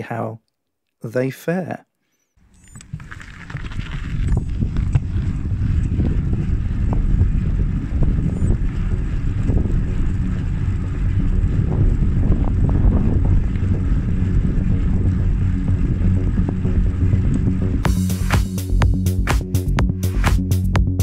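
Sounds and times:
bicycle tyre noise on tarmac: 2.4 - 18.3
wind on microphone: 2.5 - 17.9.

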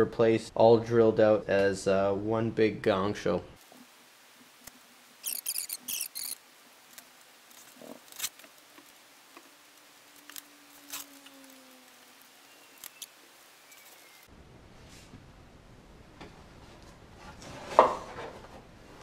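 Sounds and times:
crinkly rustling: 5.3 - 14.2.

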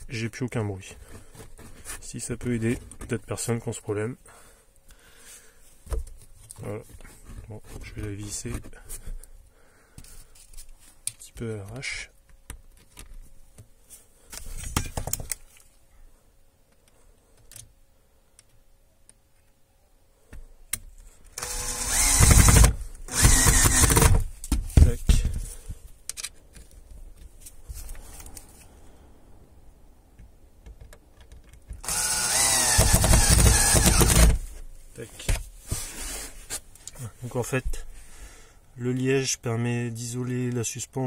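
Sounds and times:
handling rustle: 0.1 - 4.1, 5.2 - 15.9, 24.1 - 28.9, 34.3 - 38.0
cordless drill driving screws: 21.4 - 24.3, 31.8 - 34.4.

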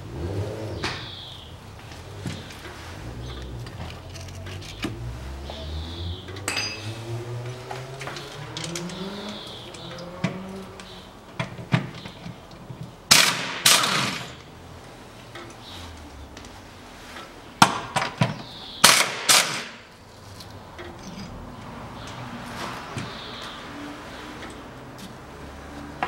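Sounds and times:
metal tool clinks: 6.5 - 7.0
pneumatic impact wrench bursts: 13.1 - 14.4.

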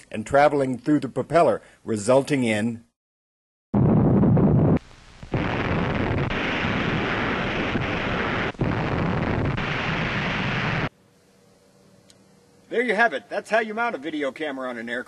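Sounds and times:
heavy rumble: 3.8 - 10.9
loud explosion blast: 3.8 - 10.9.

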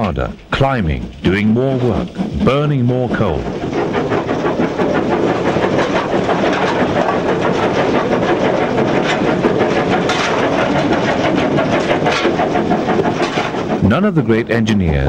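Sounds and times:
footplate rattling: 0.0 - 15.0
steam locomotive exhaust beats: 0.0 - 15.0.

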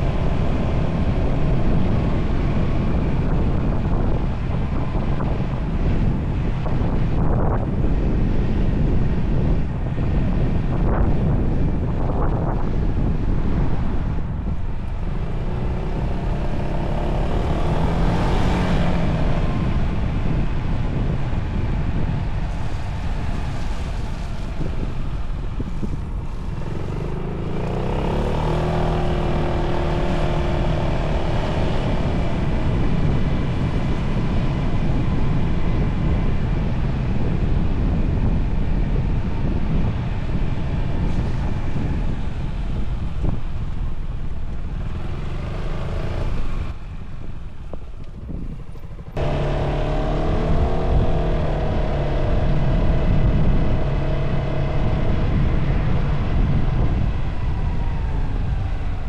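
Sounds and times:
wind rush on microphone: 0.0 - 59.0
scooter engine accelerating: 15.0 - 20.4, 23.8 - 35.0, 44.7 - 46.8, 49.0 - 59.0.

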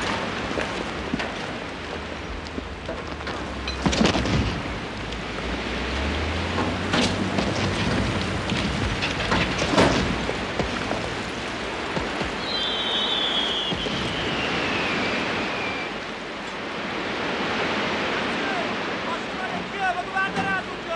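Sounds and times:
truck engine hum: 0.0 - 13.7.

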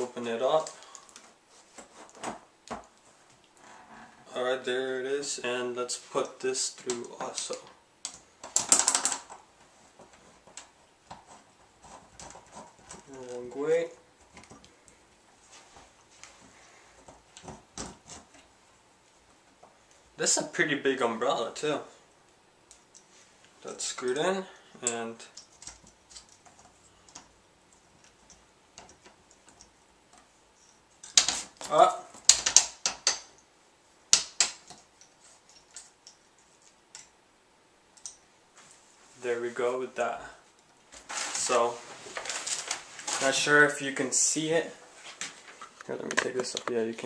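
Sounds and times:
metal stand parts clicking and knocking: 6.8 - 9.4, 24.8 - 33.5.

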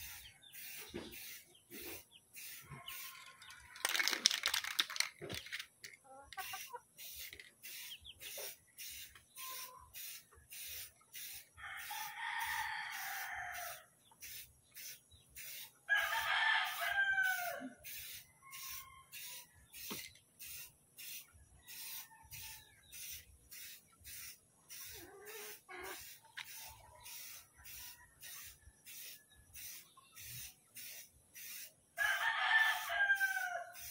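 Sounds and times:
rooster crowing: 11.6 - 13.8, 15.9 - 17.9, 18.5 - 19.5, 32.0 - 33.9.

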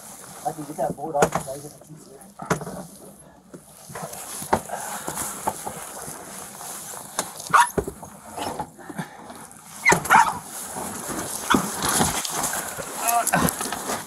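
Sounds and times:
bedding rustling: 0.0 - 14.0
dog barking: 7.5 - 7.8, 9.8 - 10.4.

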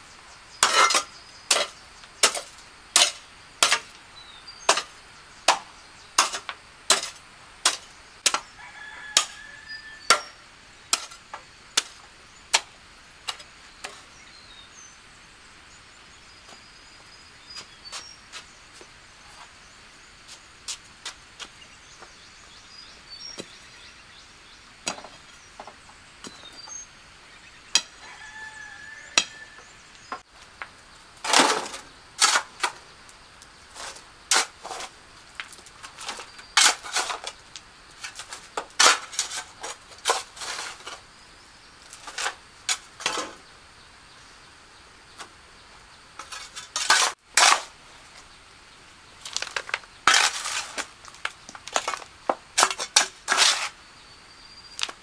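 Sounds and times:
tools scraping and clinking: 0.6 - 3.9, 46.2 - 47.7, 52.6 - 53.8.

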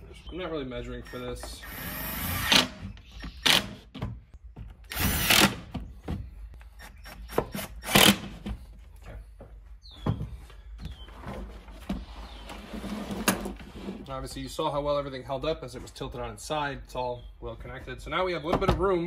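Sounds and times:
impact driver driving screws: 4.9 - 5.7.

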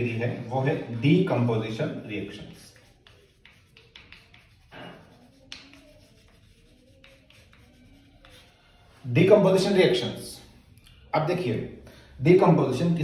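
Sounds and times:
chalk scratching on blackboard: 1.9 - 9.0
chalk tapping on blackboard: 2.3 - 8.7.

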